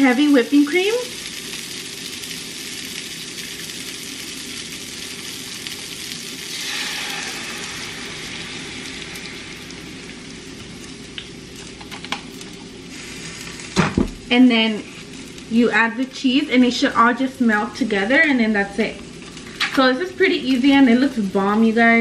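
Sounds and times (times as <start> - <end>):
broccoli sizzling in a skillet: 0.0 - 22.0
cream poured into pan: 6.5 - 9.5.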